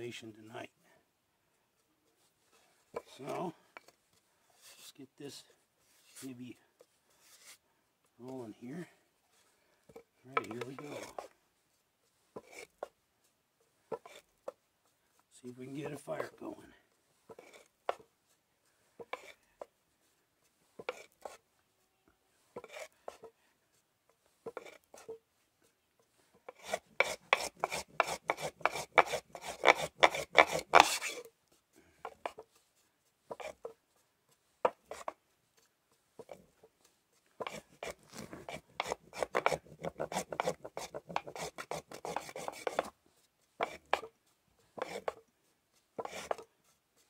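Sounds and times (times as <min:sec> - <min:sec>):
wooden block scraping on board: 0:04.6 - 0:05.0, 0:05.9 - 0:06.3, 0:07.1 - 0:07.6, 0:10.3 - 0:11.3, 0:12.3 - 0:13.0, 0:13.9 - 0:14.6, 0:17.3 - 0:18.1, 0:19.0 - 0:19.5, 0:20.8 - 0:21.4, 0:22.5 - 0:23.4, 0:24.3 - 0:25.2, 0:26.4 - 0:31.4, 0:32.0 - 0:32.6, 0:33.3 - 0:33.8, 0:34.6 - 0:35.2, 0:36.2 - 0:43.0, 0:43.6 - 0:45.3, 0:46.0 - 0:46.8.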